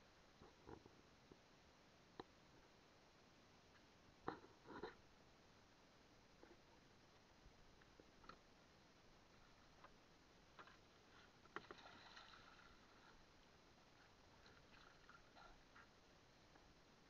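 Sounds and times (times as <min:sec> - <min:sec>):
soft water splash: 0:11.5 - 0:13.2.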